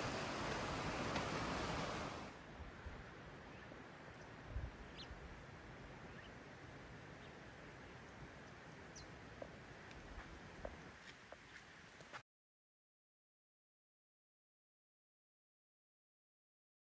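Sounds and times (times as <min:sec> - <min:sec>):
low hiss: 0:00.0 - 0:12.2.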